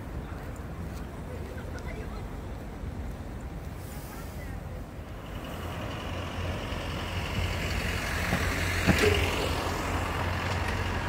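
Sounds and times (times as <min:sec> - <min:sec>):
traffic engine rumble: 0:00.0 - 0:11.0
hiss of passing vehicles: 0:02.6 - 0:11.0.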